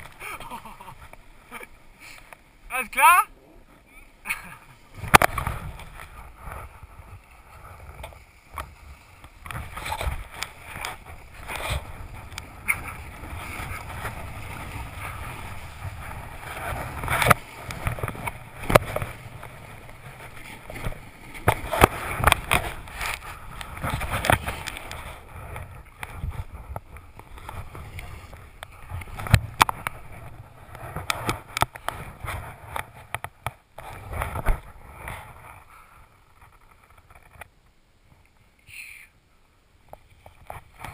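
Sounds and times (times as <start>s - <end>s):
snowboard scraping over snow: 3.4s - 33.1s
snowboard knocks and bumps: 4.6s - 35.6s.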